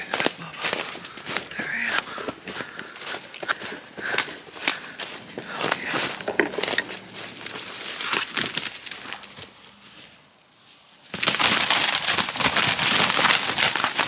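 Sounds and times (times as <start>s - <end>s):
footsteps crunching through leaves: 0.0s - 14.0s
turkey wings flapping on leaves: 11.1s - 14.0s.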